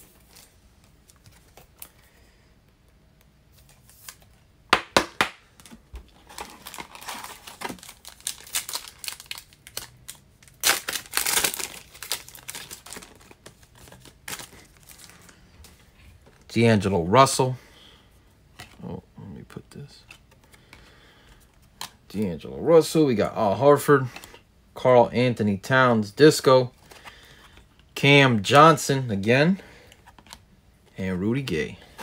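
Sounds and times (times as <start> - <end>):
wrapper crinkling: 5.6 - 15.4
wrapper tearing: 6.2 - 15.4.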